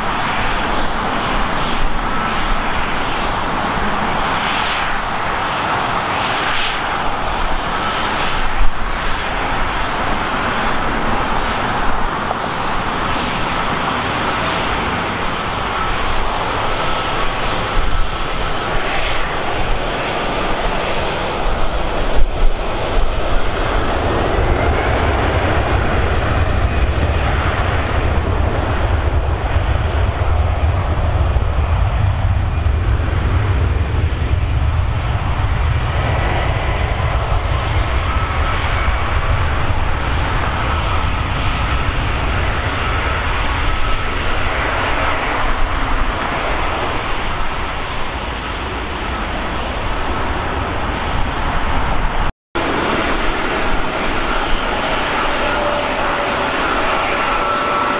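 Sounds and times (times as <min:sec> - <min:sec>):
jet engines roaring: 0:00.0 - 0:57.9
deep low rumble: 0:21.5 - 0:42.5.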